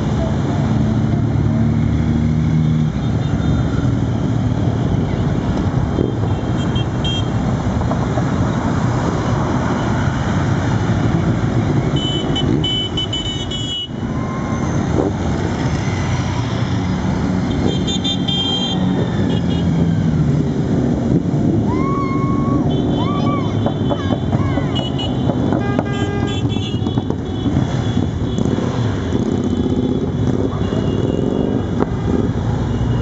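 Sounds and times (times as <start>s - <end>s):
motorcycles riding past: 7.6s - 33.0s.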